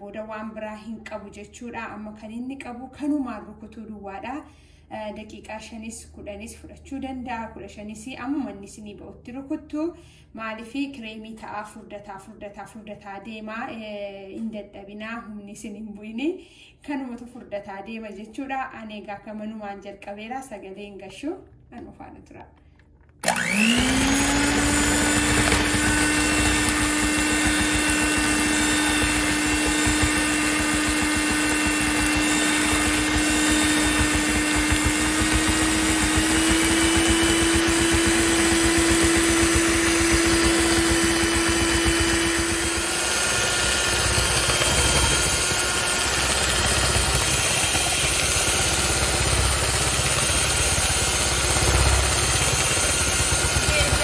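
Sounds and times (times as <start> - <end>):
electric hand mixer whipping cream: 23.2 - 54.0.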